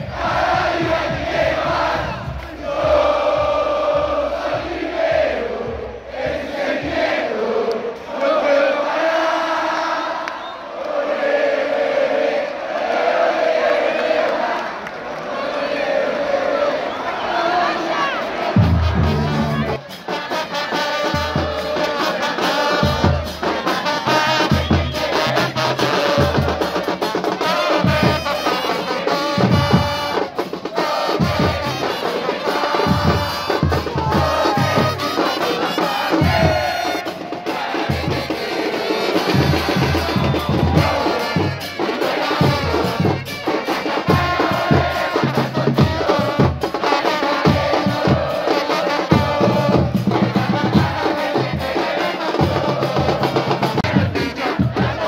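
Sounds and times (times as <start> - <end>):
bass drums pounding: 0.0 - 7.2, 18.6 - 19.8, 32.9 - 35.0, 39.3 - 41.6
trumpets playing melody: 18.4 - 54.8.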